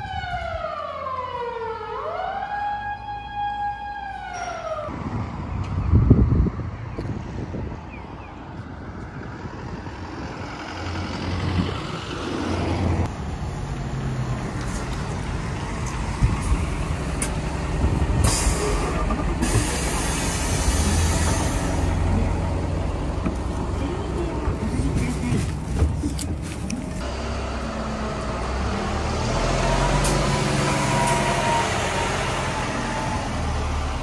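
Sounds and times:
large vehicle engine rumbling: 4.2s - 34.0s
loud air hiss: 19.4s - 21.9s.

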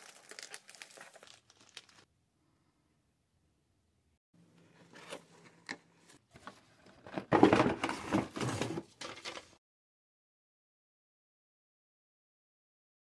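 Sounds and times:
cardboard and plastic rustling: 0.0s - 2.0s, 4.6s - 9.6s
scraping and rustling: 4.6s - 9.6s.

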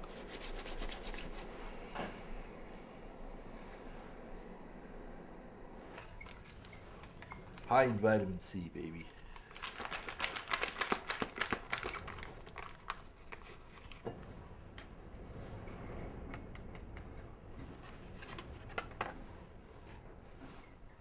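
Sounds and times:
packet crinkling and tearing: 6.3s - 7.8s, 8.8s - 14.1s.

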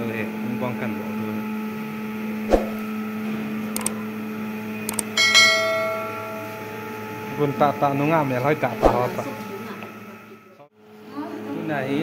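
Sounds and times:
steady low hum: 0.3s - 10.7s
bell ding: 5.0s - 7.2s.

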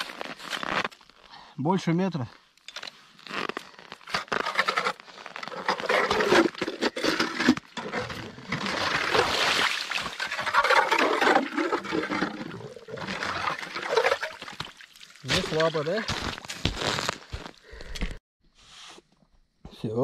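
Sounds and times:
slush sloshing and splashing: 4.4s - 17.1s.

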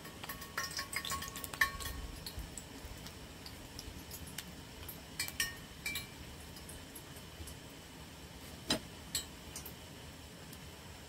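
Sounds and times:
utensils clinking on metal pot: 0.0s - 2.0s, 5.2s - 6.7s.

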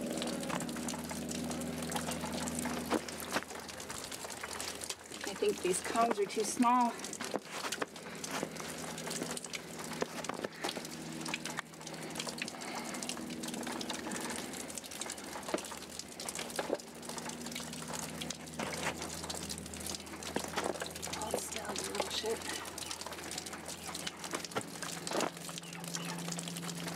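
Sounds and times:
blood dripping into plastic bucket: 0.0s - 26.9s
light clicks and rustles: 1.9s - 26.7s.

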